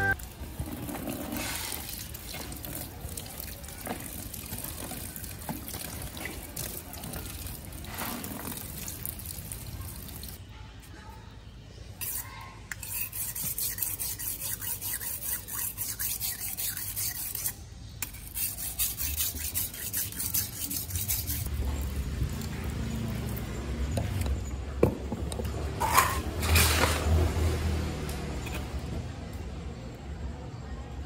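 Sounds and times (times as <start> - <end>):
rhythmic scraping strokes: 12.0 - 21.5.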